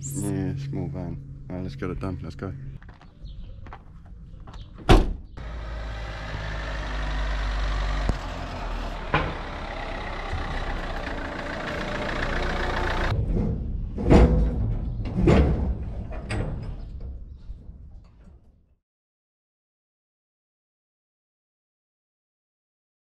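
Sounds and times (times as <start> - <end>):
van engine running: 5.4 - 13.2.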